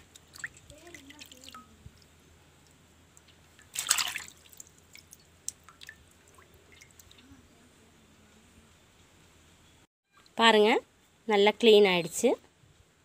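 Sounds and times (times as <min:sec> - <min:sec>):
water dripping and sloshing: 0:00.0 - 0:07.3
water splash: 0:03.6 - 0:07.2.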